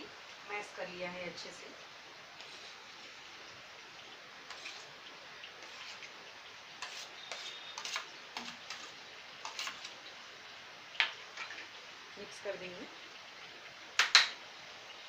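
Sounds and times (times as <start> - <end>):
masher scraping a steel bowl: 2.4 - 2.8, 4.5 - 4.9, 5.6 - 6.1, 6.8 - 9.9.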